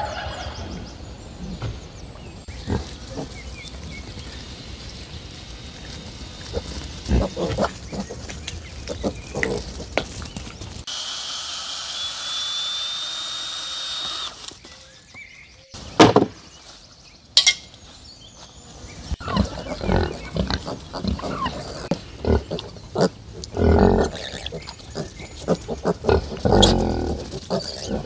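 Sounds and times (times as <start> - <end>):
pigs grunting: 2.5 - 3.6, 6.4 - 10.0, 19.2 - 28.0
power tool whining: 10.8 - 14.6.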